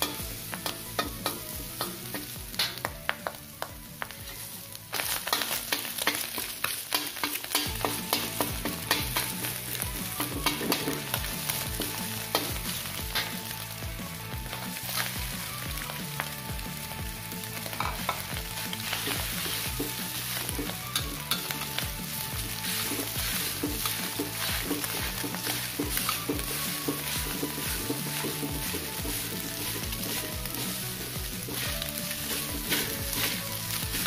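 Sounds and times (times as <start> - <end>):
metal spatula scraping wok: 0.0 - 2.9, 4.0 - 15.9, 17.6 - 34.0
spatula clicking against wok: 0.0 - 4.1, 5.2 - 9.4, 12.3 - 12.6, 20.5 - 21.8
rice frying with sizzle: 0.0 - 34.0.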